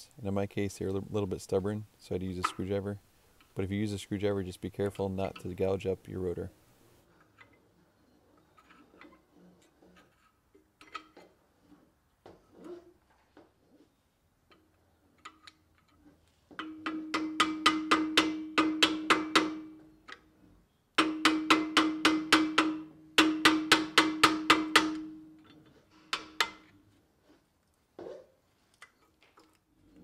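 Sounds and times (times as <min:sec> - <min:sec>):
screwdriver tapping on metal: 0:16.6 - 0:20.2, 0:21.0 - 0:26.7.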